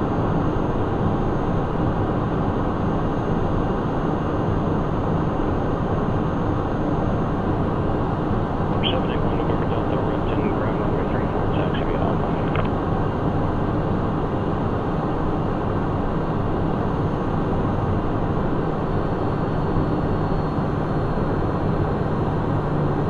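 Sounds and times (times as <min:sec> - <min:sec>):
jet engines humming: 0:08.6 - 0:13.8.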